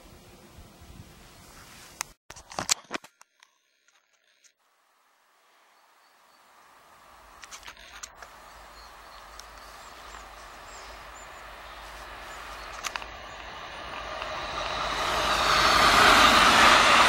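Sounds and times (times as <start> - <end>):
birds chirping: 5.6 - 17.0
train rumble and rail noise: 8.2 - 17.0.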